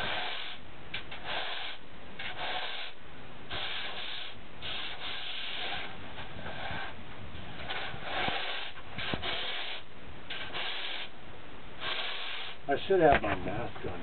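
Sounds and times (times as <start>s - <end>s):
sanding block rasping on foam: 0.0s - 7.0s, 7.7s - 11.1s.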